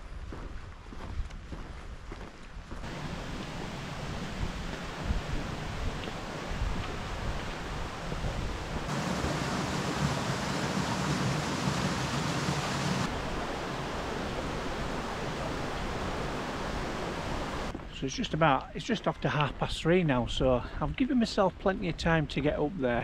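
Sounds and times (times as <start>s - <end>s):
wind blowing on microphone: 2.8s - 17.8s.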